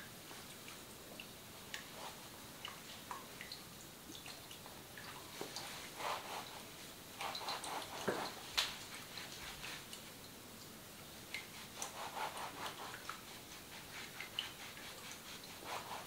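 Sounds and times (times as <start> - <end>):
water dripping: 0.0 - 16.0
towel rubbing wet hair: 1.8 - 3.1, 5.3 - 10.1, 11.4 - 16.0.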